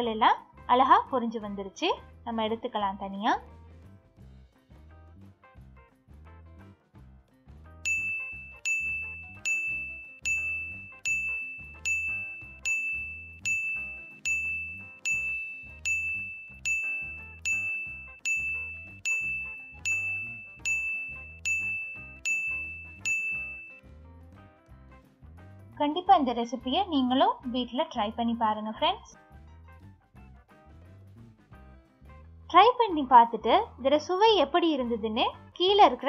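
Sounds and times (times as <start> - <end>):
background music with soft beat: 0.0 - 28.0
bell-like ding: 7.8 - 23.8.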